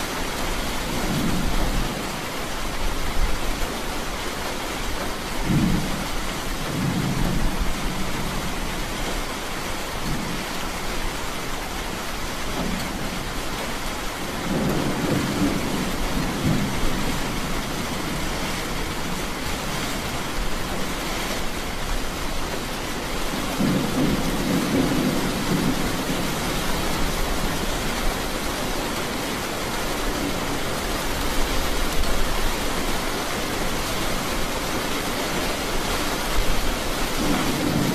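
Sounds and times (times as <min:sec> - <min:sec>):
steady rain hiss: 0:00.0 - 0:37.9
thunder rolling: 0:05.4 - 0:08.8, 0:14.3 - 0:20.4, 0:23.2 - 0:28.1, 0:36.5 - 0:37.9.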